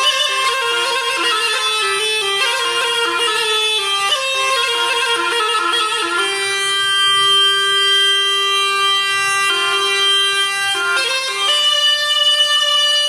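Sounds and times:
reed wind instrument music: 0:00.0 - 0:13.0.

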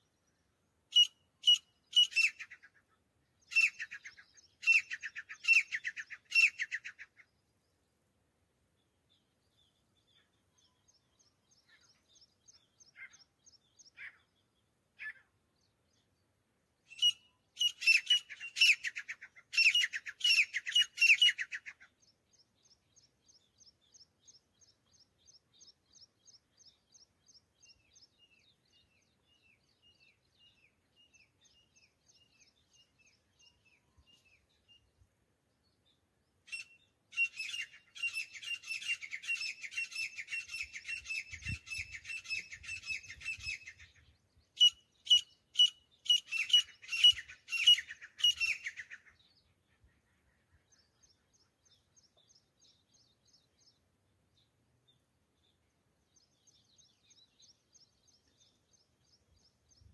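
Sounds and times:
francolins calling: 0:00.9 - 0:07.4, 0:16.9 - 0:29.0, 0:36.5 - 0:53.8.

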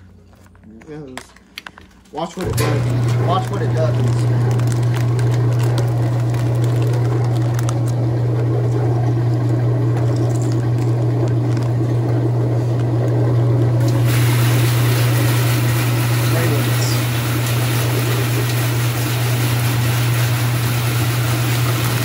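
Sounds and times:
washing machine motor humming: 0:02.4 - 0:22.0
water rushing through drum: 0:10.7 - 0:22.0.

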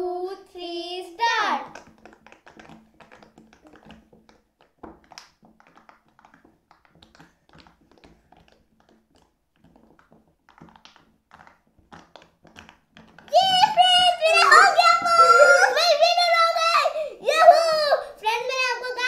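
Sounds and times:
fidget toy bubbles popping: 0:01.6 - 0:16.7.

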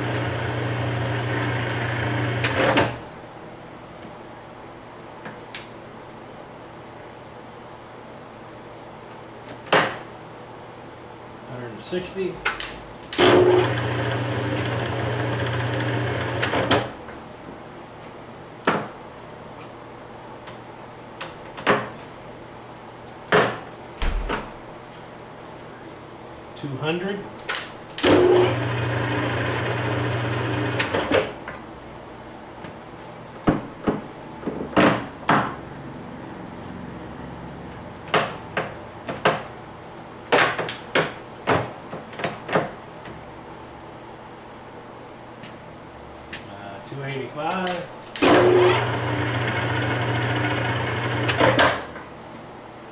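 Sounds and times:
lathe humming: 0:13.4 - 0:16.5, 0:28.3 - 0:30.8, 0:48.5 - 0:51.4.

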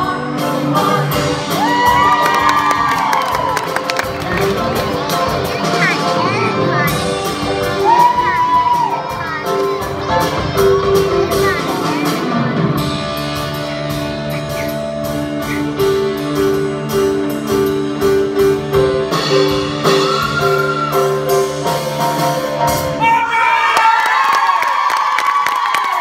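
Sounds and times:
live band playing: 0:00.0 - 0:23.6
audience cheering and whooping: 0:01.5 - 0:04.8, 0:07.7 - 0:09.2, 0:19.9 - 0:21.4, 0:23.0 - 0:26.0.

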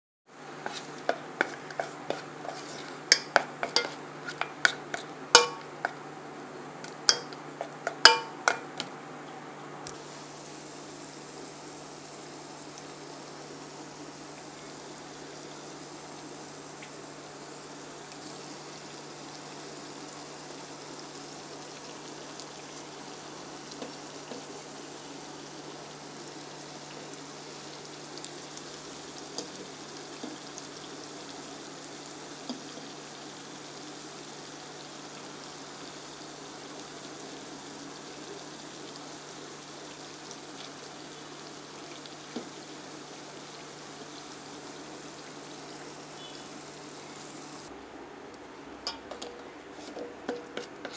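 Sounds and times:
batter sizzling in hot oil: 0:00.3 - 0:08.8, 0:09.9 - 0:47.7, 0:48.8 - 0:50.9
metal fork clicking on pan: 0:05.4 - 0:05.7, 0:07.1 - 0:07.4, 0:08.0 - 0:08.6, 0:48.9 - 0:49.3.

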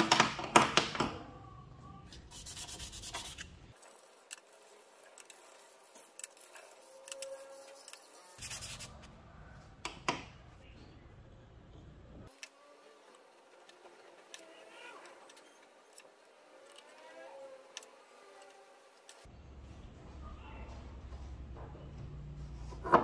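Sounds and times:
plastic rubbed on sandpaper: 0:02.2 - 0:09.0.

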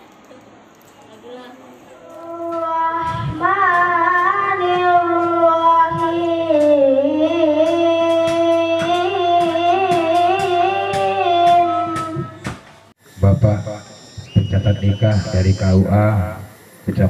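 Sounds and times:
boy chanting into microphone: 0:02.0 - 0:12.5
steady low hum: 0:13.0 - 0:17.0.

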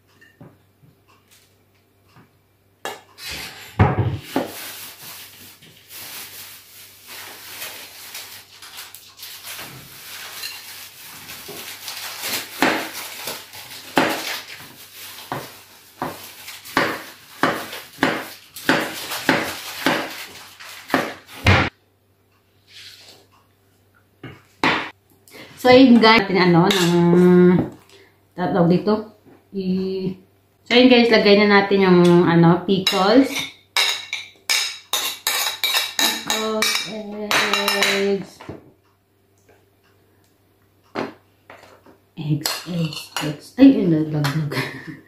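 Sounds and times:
knife chopping on wooden board: 0:12.6 - 0:12.9, 0:14.0 - 0:14.3, 0:15.3 - 0:20.2, 0:20.9 - 0:21.7.

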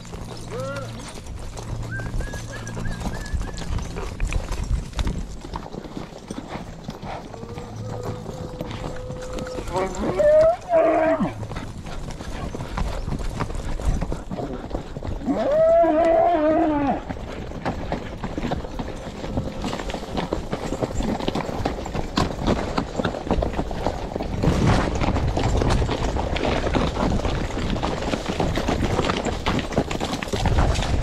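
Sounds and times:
hoofbeats: 0:00.0 - 0:31.0
horse moving through dry brush: 0:00.0 - 0:31.0
cow bawling: 0:07.4 - 0:11.4.

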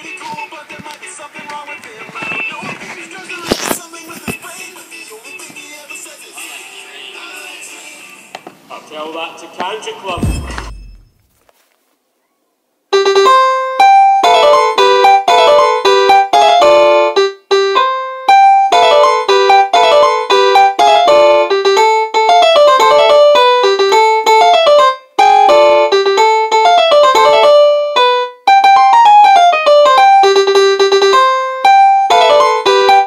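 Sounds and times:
digital piano melody: 0:12.9 - 0:33.0.

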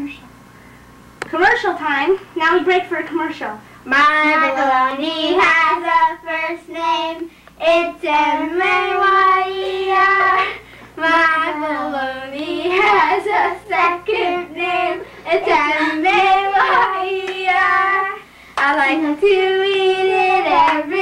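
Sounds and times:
children singing: 0:07.7 - 0:21.0.

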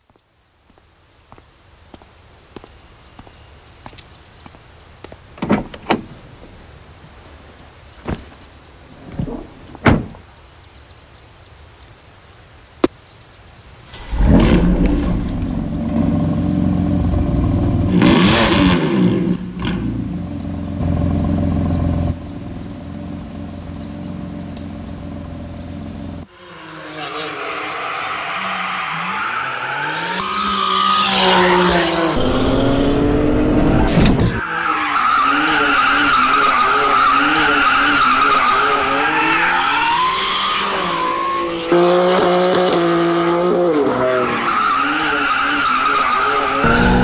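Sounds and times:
car door clicks and thunks: 0:05.4 - 0:06.2, 0:09.7 - 0:10.2
car engine starting and idling: 0:46.6 - 0:47.0.

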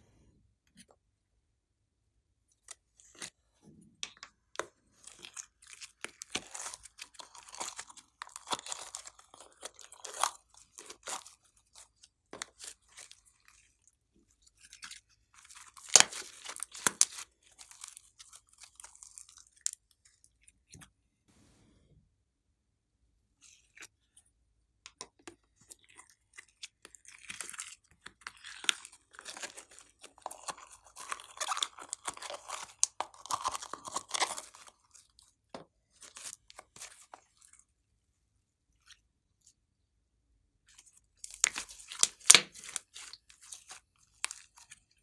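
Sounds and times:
slime crackling and popping: 0:05.0 - 0:11.8, 0:15.4 - 0:19.7, 0:26.8 - 0:34.8, 0:41.3 - 0:44.7.

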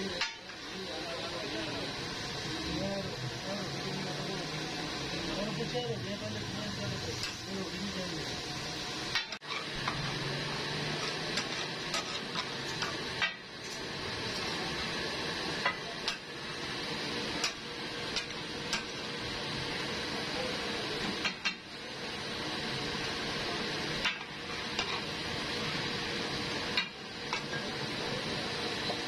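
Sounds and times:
chicken sizzling in oil: 0:00.0 - 0:29.0
metal spatula scraping griddle: 0:09.4 - 0:10.2, 0:10.8 - 0:14.5, 0:24.2 - 0:25.1.

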